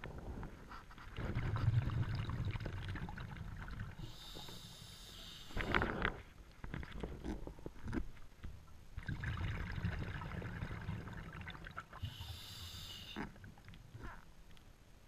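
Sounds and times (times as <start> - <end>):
exhale of rumbling bubbles: 1.2 - 4.5, 9.0 - 13.6
hissing inhale through regulator: 4.0 - 6.0, 12.0 - 13.3.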